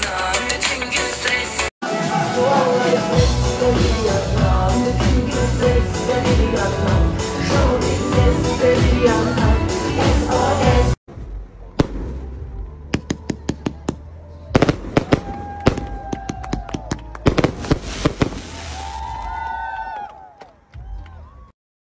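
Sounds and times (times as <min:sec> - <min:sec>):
fireworks bangs and crackles: 0:11.1 - 0:19.2.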